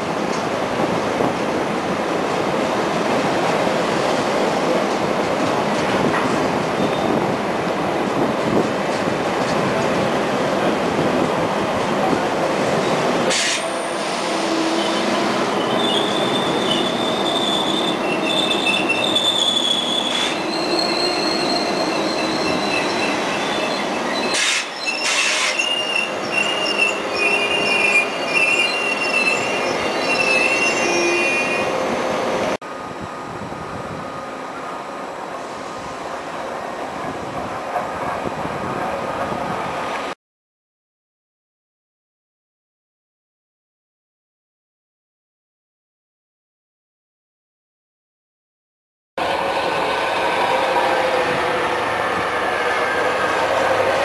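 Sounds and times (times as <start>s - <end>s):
train running gear rumbling: 0.0s - 34.8s, 36.8s - 40.1s
wheels squealing on rails: 6.7s - 7.3s, 12.8s - 32.5s.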